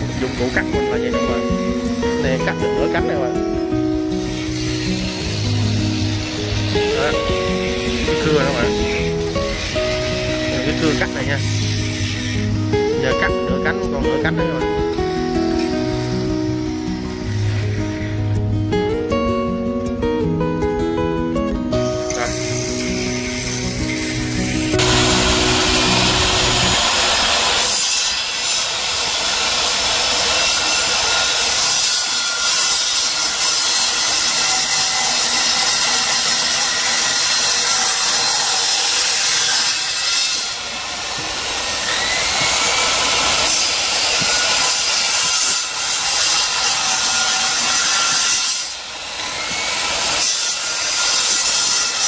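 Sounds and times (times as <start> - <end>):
circular saw cutting metal: 0.0 - 18.5, 21.9 - 52.0.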